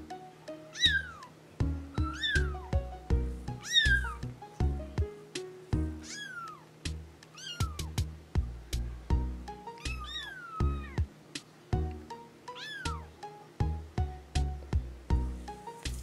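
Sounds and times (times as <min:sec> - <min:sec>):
background music: 0:00.0 - 0:16.0
kittens mewing: 0:00.7 - 0:01.3, 0:02.0 - 0:02.7, 0:03.6 - 0:04.3, 0:06.0 - 0:06.7, 0:07.3 - 0:08.0, 0:09.8 - 0:11.1, 0:12.6 - 0:13.1.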